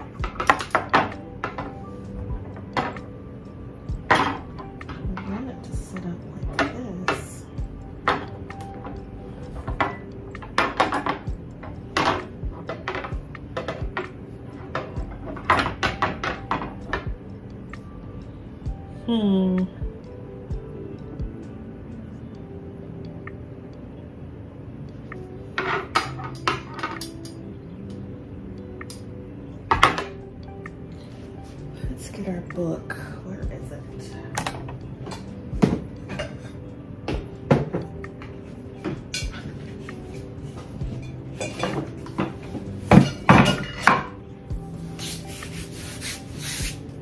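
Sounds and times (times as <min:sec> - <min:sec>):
faint background music: 0:00.0 - 0:47.0
hard objects knocking and clattering: 0:09.6 - 0:17.1.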